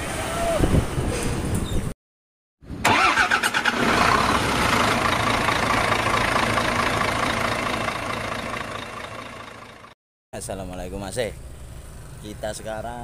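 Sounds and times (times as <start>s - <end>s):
truck engine: 2.7s - 10.0s.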